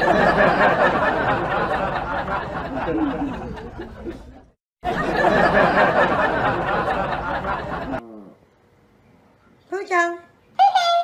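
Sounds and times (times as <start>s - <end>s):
people chattering and laughing: 0.0s - 8.0s.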